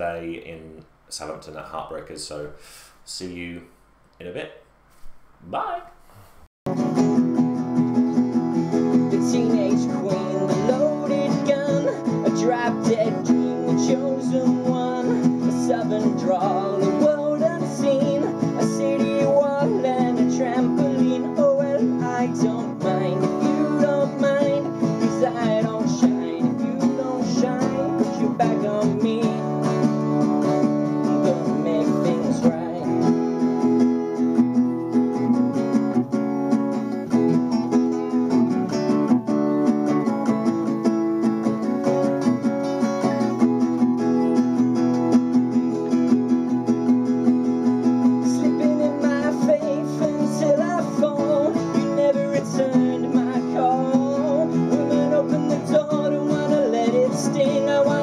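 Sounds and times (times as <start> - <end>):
acoustic guitars strummed: 6.7 - 58.0
man singing: 8.9 - 33.7, 48.0 - 58.0.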